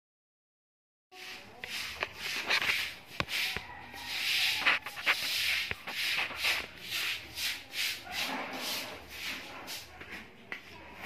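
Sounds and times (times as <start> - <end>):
hand tool rasping on metal: 1.2 - 9.9.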